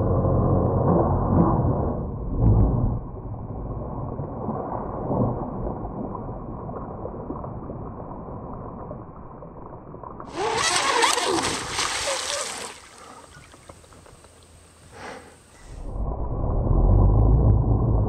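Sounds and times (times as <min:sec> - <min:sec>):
hull slapping water: 0:10.2 - 0:14.9
rc speedboat running fast: 0:10.3 - 0:13.0.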